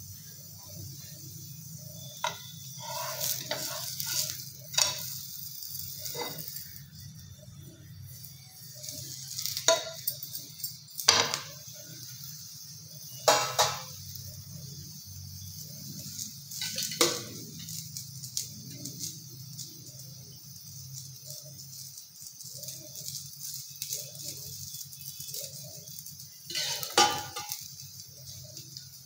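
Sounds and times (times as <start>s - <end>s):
flatbread sizzling in a frying pan: 0.0s - 29.0s
pan and spatula clinking: 2.1s - 6.8s, 8.8s - 11.6s, 13.2s - 14.1s, 16.1s - 19.0s, 22.6s - 28.9s.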